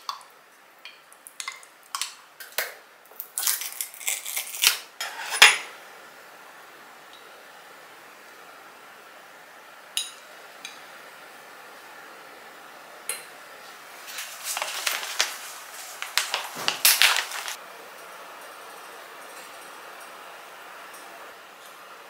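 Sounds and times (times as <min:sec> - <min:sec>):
paper bag crinkling: 0:14.0 - 0:17.6.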